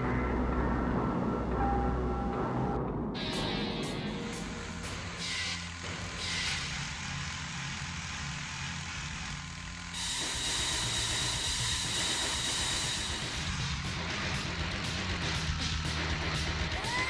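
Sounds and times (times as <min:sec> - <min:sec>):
high whine: 0:00.0 - 0:08.1
low mechanical rumble and hum: 0:00.0 - 0:17.0.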